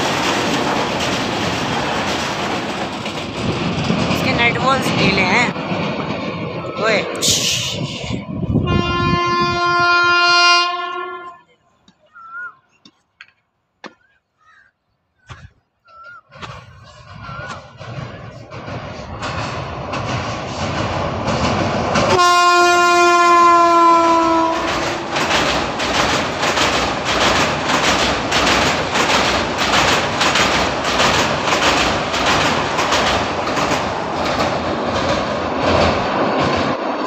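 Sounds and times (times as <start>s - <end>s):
train wheels clattering on bridge: 0.0s - 8.2s, 16.3s - 37.0s
train horn blast: 8.6s - 11.5s, 22.1s - 25.0s.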